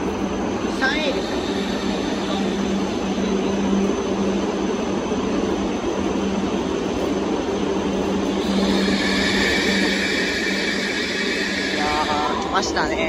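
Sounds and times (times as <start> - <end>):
train interior hum: 0.0 - 13.0
bright hissy noise: 0.7 - 3.4, 8.2 - 13.0.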